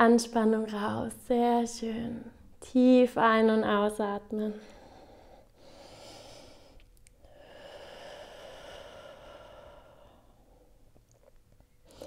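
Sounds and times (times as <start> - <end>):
woman breathing deeply: 4.6 - 10.9.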